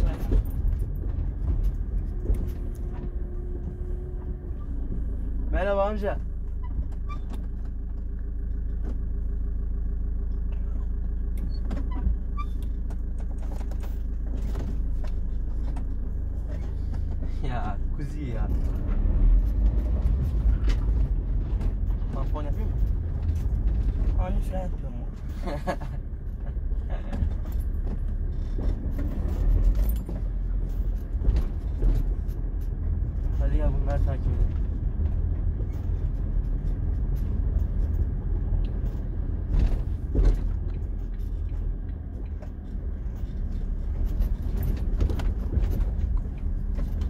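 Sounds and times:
road noise: 0.0 - 47.0
van engine running: 0.0 - 47.0
jingling and rattling clicks: 27.3 - 32.4.

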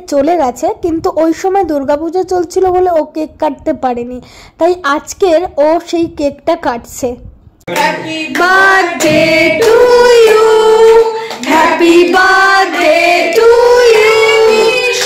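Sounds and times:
women singing slow melody: 7.7 - 15.0.

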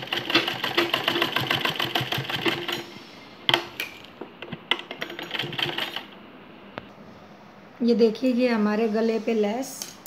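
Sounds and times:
sewing machine stitching: 0.0 - 2.8, 5.0 - 6.1.

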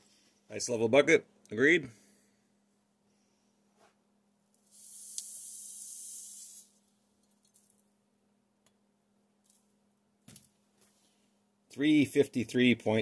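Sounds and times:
sand pouring into plastic cup: 4.6 - 6.8.

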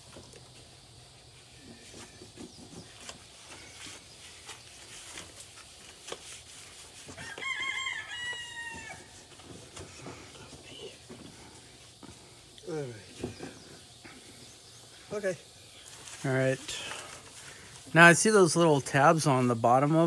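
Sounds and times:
rooster crowing: 7.2 - 9.3.

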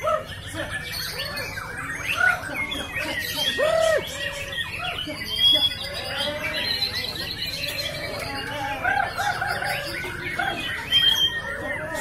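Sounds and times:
songbirds singing: 0.0 - 12.0.

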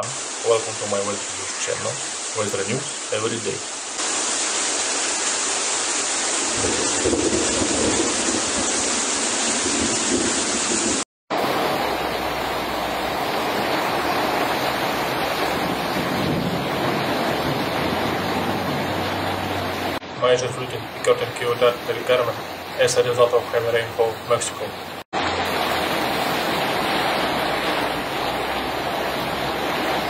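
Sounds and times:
floodwater running: 0.0 - 30.0
heavy rain: 0.0 - 30.0.

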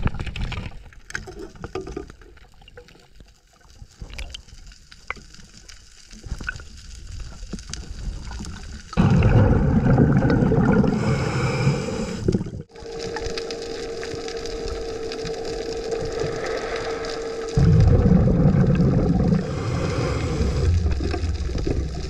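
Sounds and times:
faint crackling and clicks: 0.0 - 9.0, 12.3 - 22.0
rush of exhaled bubbles: 8.2 - 13.2, 15.3 - 22.0.

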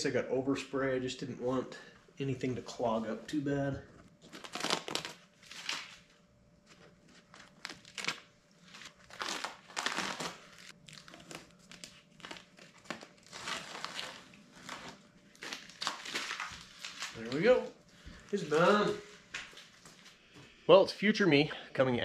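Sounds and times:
masking tape peeling and tearing: 4.2 - 6.2, 7.1 - 17.7.

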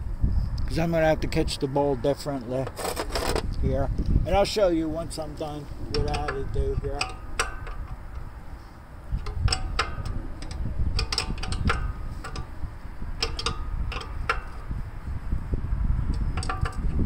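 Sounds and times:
wrench clicking on metal fitting: 5.9 - 8.3, 9.1 - 12.6, 13.2 - 14.7.

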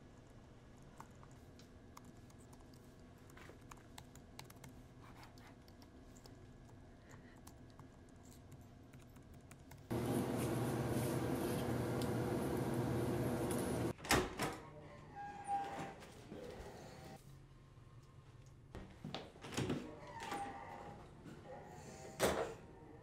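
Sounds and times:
loud steady hum and hiss: 9.9 - 13.9.

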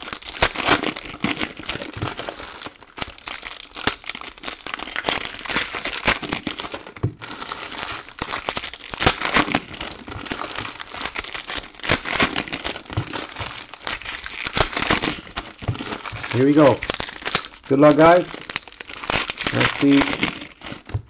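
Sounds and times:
foil wrappers crinkling: 0.0 - 21.0.

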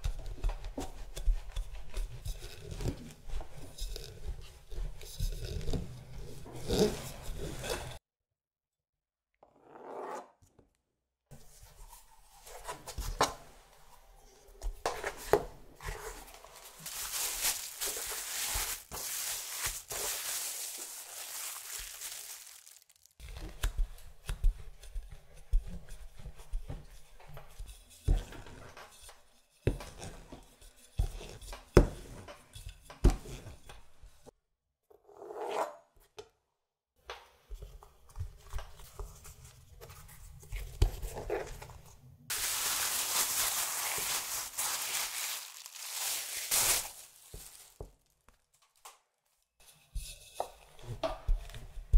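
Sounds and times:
hands scraping and rustling dough: 0.0 - 8.0, 14.6 - 34.3, 37.5 - 48.8.

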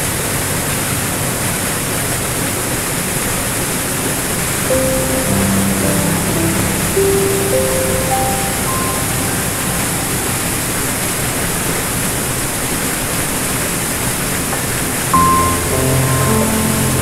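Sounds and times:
waterfall rushing into pool: 0.0 - 17.0
soft piano note: 4.7 - 11.5, 15.2 - 17.0.

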